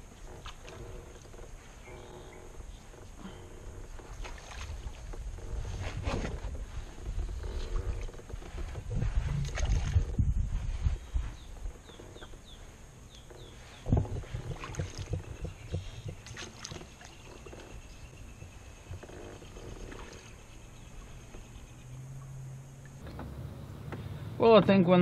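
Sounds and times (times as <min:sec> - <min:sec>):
bird chirping: 0:11.0 - 0:14.0, 0:14.8 - 0:24.4
knocks and clicks from kayak hull: 0:13.2 - 0:17.9.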